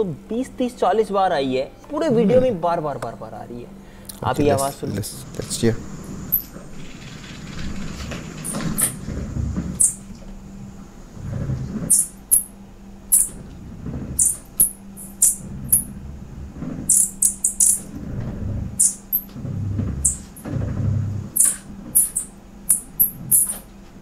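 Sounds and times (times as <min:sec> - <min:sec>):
faint steady hum: 0:00.0 - 0:24.0
high-pitched squeaks: 0:09.8 - 0:10.0, 0:11.9 - 0:12.5, 0:13.1 - 0:13.4, 0:14.2 - 0:15.9, 0:16.9 - 0:17.9, 0:18.7 - 0:19.3, 0:20.0 - 0:20.5, 0:21.4 - 0:23.7.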